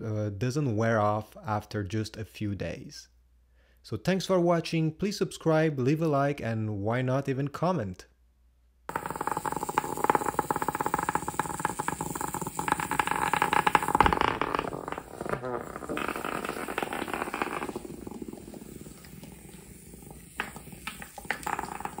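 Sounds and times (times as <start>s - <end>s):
vibrating toy rattling on floor: 8.9s - 22.0s.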